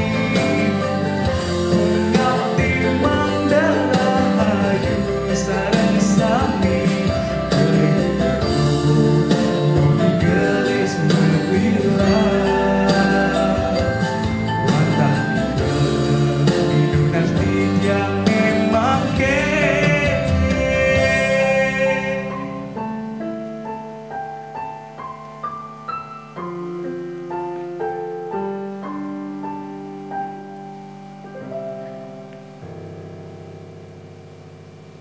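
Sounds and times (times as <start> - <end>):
man singing: 0.0 - 22.8
slow piano: 0.0 - 35.0.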